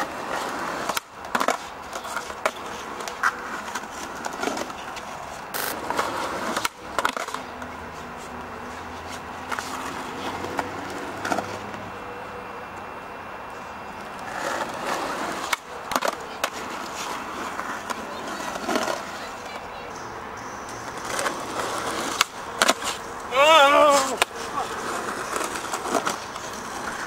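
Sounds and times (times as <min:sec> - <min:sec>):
skateboard clacks and slaps: 0:00.0 - 0:05.1, 0:05.8 - 0:07.7, 0:14.2 - 0:19.7, 0:20.8 - 0:23.0, 0:23.7 - 0:27.0
skateboard wheels grinding on concrete: 0:00.0 - 0:27.0.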